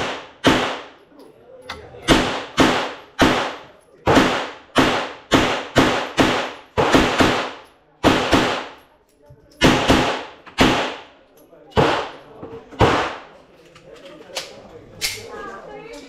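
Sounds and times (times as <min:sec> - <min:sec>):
gunshots with echo: 0:00.0 - 0:01.0, 0:02.0 - 0:08.8, 0:09.6 - 0:11.2, 0:11.8 - 0:12.2, 0:12.8 - 0:13.3.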